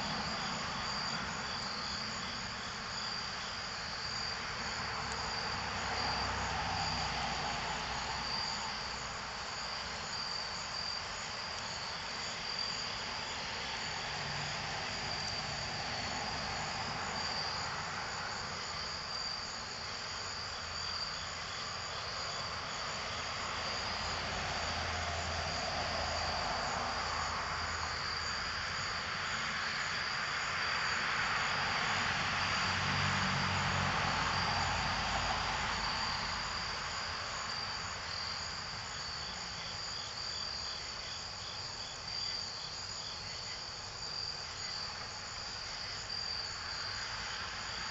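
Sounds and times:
crickets chirping: 0:00.0 - 0:47.9.

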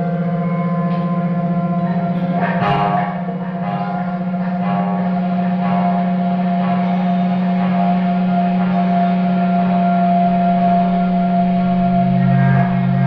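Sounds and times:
electric guitar drone: 0:00.0 - 0:13.0
struck ringing hit: 0:00.4 - 0:07.2.

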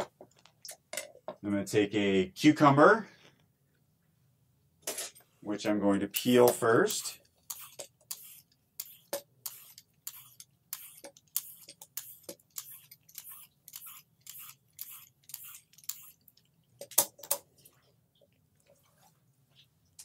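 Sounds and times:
peeler scraping cucumber skin: 0:06.9 - 0:16.5.

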